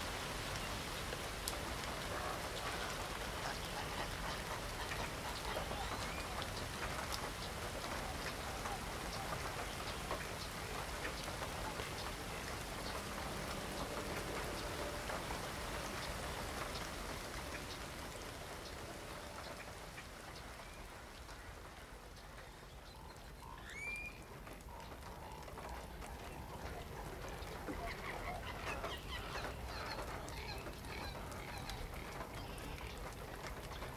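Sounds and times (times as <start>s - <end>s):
rain falling on water: 0.0s - 33.9s.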